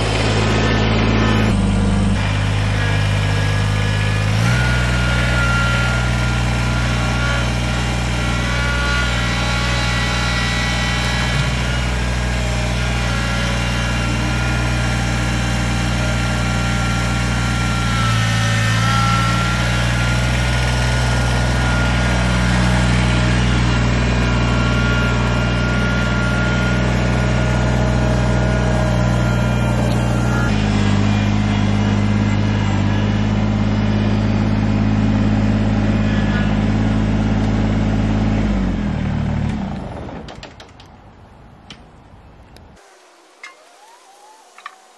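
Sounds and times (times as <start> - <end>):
tractor diesel engine running: 0.0 - 44.9
thin steady whine: 42.7 - 44.9.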